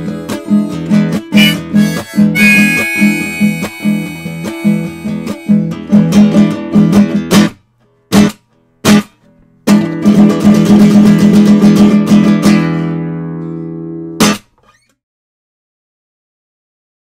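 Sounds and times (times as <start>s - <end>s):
acoustic guitar strumming: 0.0s - 14.6s.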